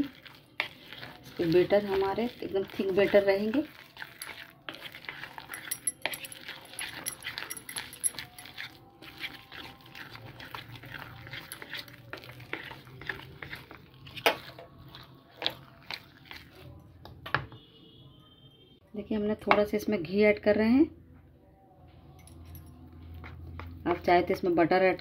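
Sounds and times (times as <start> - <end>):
whisk wires clicking on container: 0.0 - 8.6
whisk stirring thick batter: 0.0 - 16.8.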